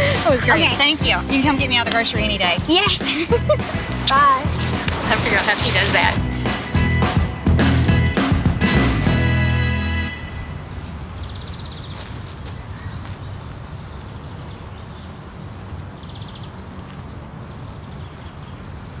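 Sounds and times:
birds chirping and trilling: 0.0s - 6.7s, 9.5s - 19.0s.

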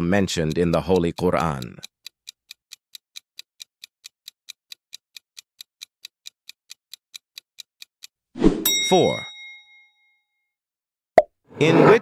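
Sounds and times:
countdown timer ticking: 0.0s - 8.1s.

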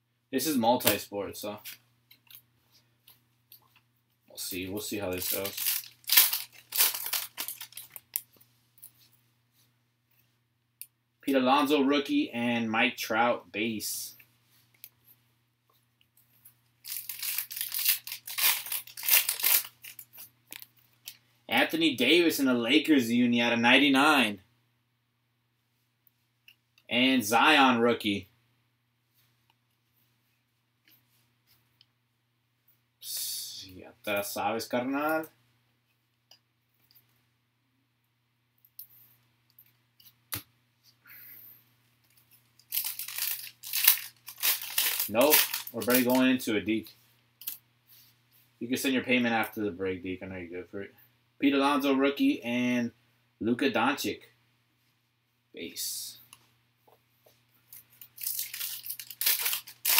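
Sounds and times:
foil wrapper tearing and crinkling: 5.1s - 8.2s, 16.8s - 20.6s, 42.6s - 46.2s, 58.0s - 59.9s.

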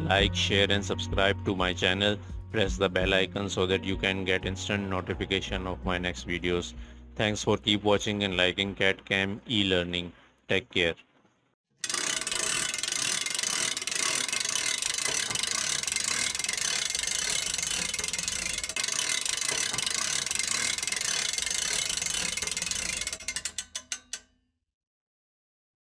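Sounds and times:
machinery gears clattering: 11.8s - 24.2s.

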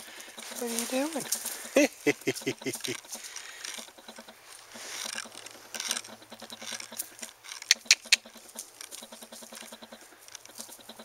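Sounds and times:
soft steps on dry grass: 0.4s - 2.3s
sharp clicks: 5.0s - 9.7s.

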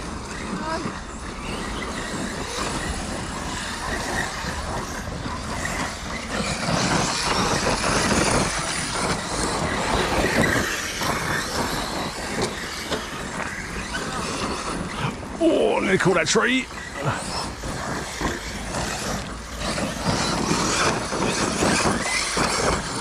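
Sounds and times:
electric motors whining: 0.0s - 23.0s
tyres tearing at dirt and gravel: 0.0s - 23.0s.

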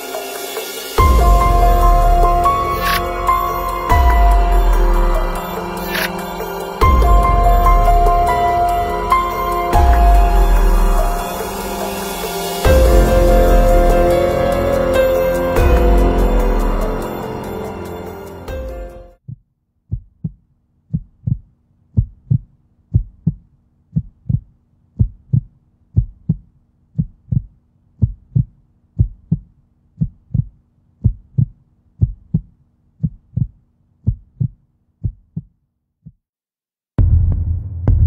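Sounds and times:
heartbeat thumps: 19.3s - 36.2s.

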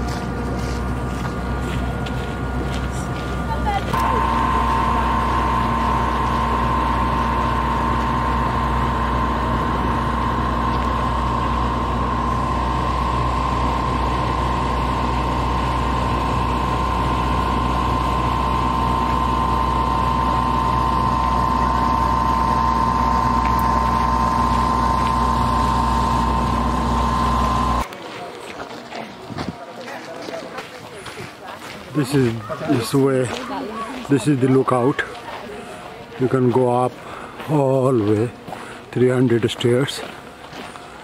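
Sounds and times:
high whine: 0.0s - 27.9s
train rumble inside coach: 0.0s - 27.9s.

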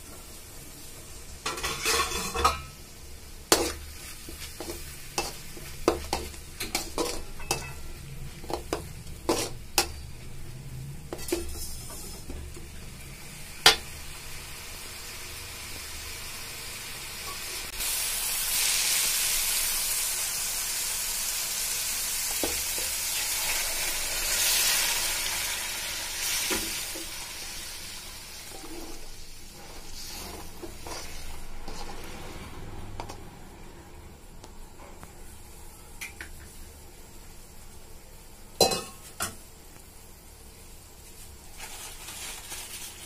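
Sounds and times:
water sizzling in hot pan: 0.0s - 10.2s, 11.2s - 32.3s, 40.9s - 43.0s.

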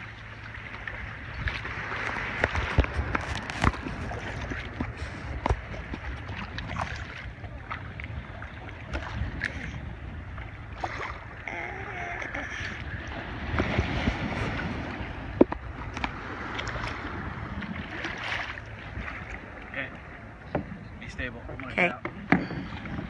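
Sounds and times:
water lapping: 0.0s - 23.0s
small splashes and knocks: 0.7s - 9.8s
wind buffeting microphone: 1.1s - 23.0s.

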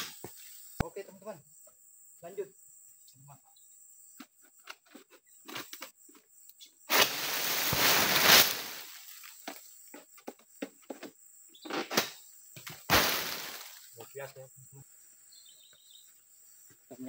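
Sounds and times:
palm frond rustling swish: 6.9s - 9.4s, 12.9s - 14.0s.

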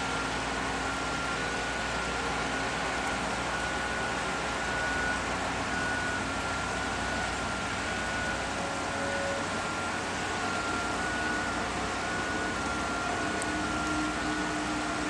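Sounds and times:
faint high whine: 0.0s - 15.0s
machinery running: 0.0s - 15.0s.

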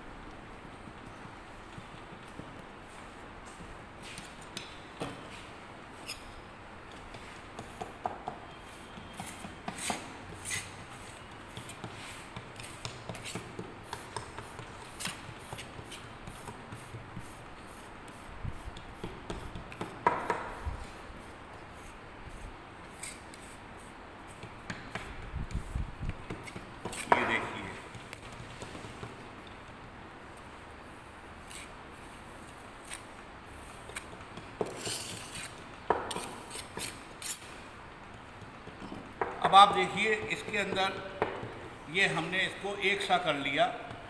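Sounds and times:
trowel scraping sand: 34.7s - 35.6s.

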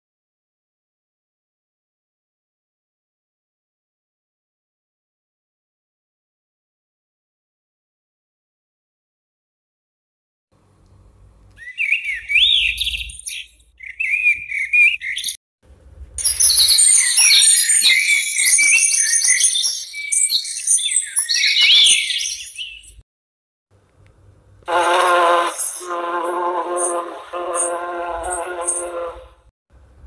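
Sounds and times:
recorded birds chirping and trilling: 11.5s - 15.4s, 16.2s - 23.0s, 24.7s - 29.4s.

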